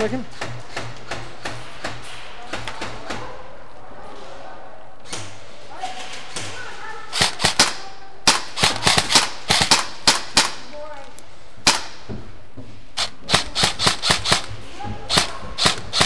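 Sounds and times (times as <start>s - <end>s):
airsoft rifle shots: 7.1s - 10.7s, 11.6s - 12.1s, 13.0s - 14.5s, 15.1s - 16.0s.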